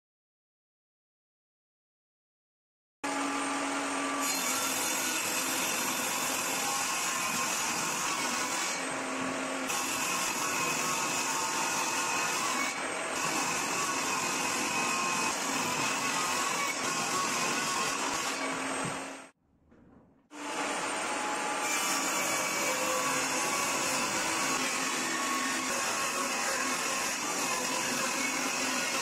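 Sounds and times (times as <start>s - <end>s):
table saw ripping a board: 4.0s - 19.3s, 21.2s - 29.0s.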